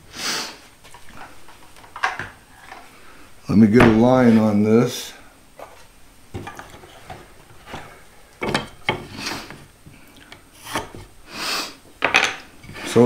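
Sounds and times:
wooden knocks and scrapes: 5.6s - 9.6s.

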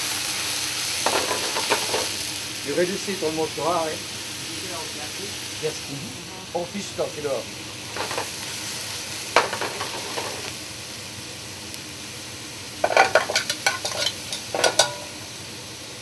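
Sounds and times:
food sizzling in a pan: 0.0s - 16.0s
metal utensils clinking on pans: 1.0s - 2.1s, 9.4s - 10.4s, 12.8s - 15.2s.

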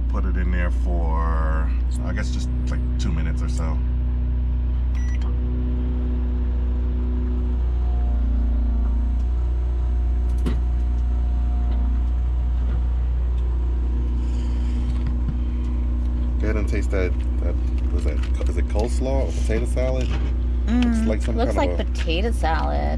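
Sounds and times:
steady low drone: 0.0s - 22.9s
microwave oven humming: 4.8s - 22.7s
microwave keypad beep: 5.0s - 5.3s.

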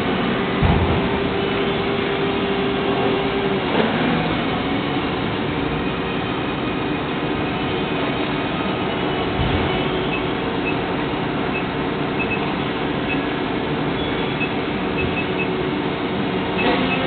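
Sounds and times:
injection moulding machine drone: 0.0s - 17.0s.

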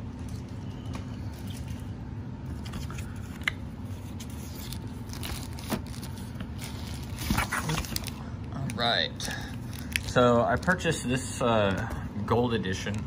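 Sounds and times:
plastic and paper crinkling: 2.5s - 11.0s.

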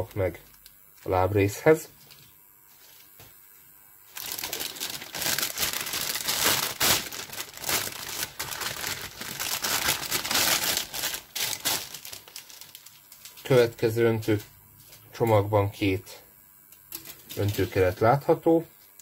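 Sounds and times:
plastic bag crinkling: 4.1s - 13.6s.

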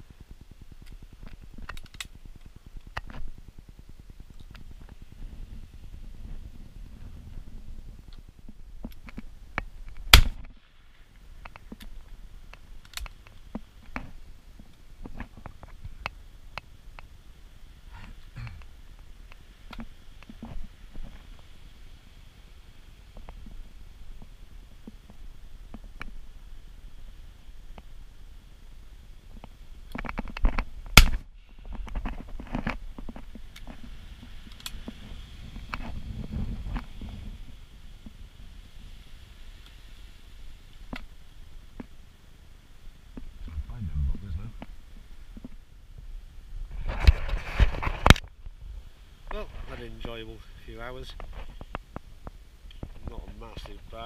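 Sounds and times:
light clicks and rustles: 8.1s - 17.2s, 29.2s - 38.2s
shotgun shot: 10.1s - 10.4s, 31.0s - 31.2s.

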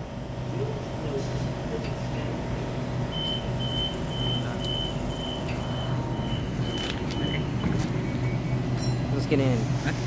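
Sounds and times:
electric train equipment humming: 0.0s - 10.0s
short high electronic beeps: 3.1s - 9.0s.

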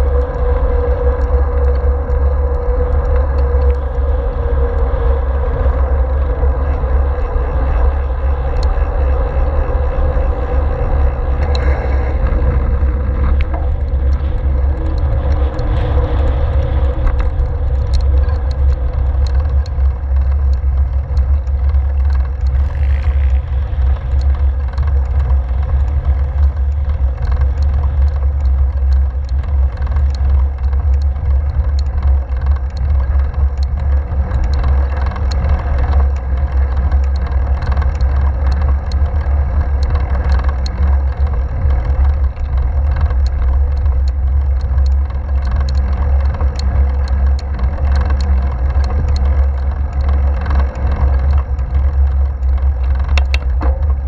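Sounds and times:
tyres on asphalt: 0.0s - 54.0s
wind buffeting microphone: 0.0s - 54.0s.

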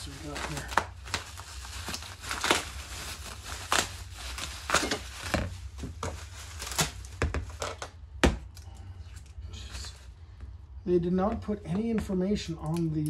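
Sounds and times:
bubble wrap crinkling and tearing: 0.0s - 8.0s.

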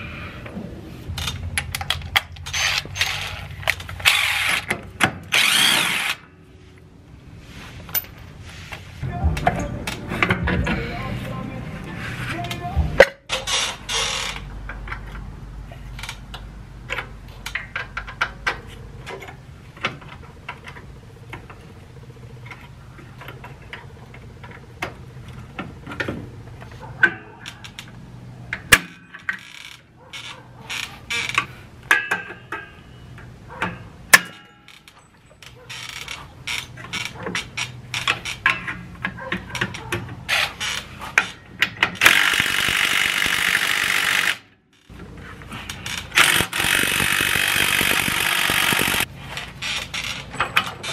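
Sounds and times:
cordless drill running: 5.3s - 6.2s, 46.2s - 49.0s.

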